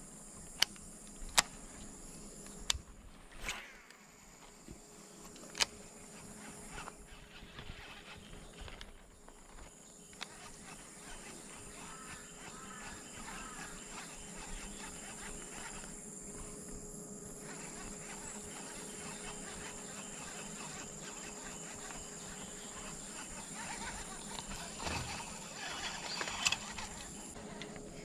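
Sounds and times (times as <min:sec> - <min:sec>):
insects chirping: 0:00.0 - 0:28.0
high-pitched buzz: 0:10.0 - 0:27.6.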